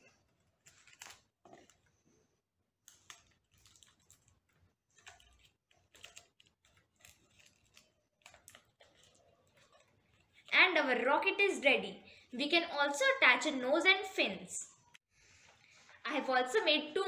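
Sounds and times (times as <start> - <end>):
paper tube crinkling: 0.1 - 2.0, 2.8 - 11.3.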